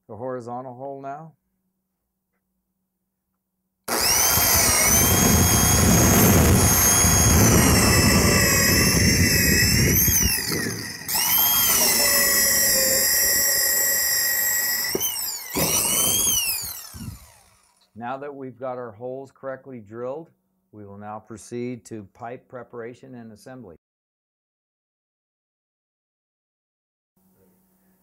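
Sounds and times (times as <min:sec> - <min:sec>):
drill bit crunching wood: 0:03.9 - 0:17.9
drill motor whining: 0:03.9 - 0:17.9.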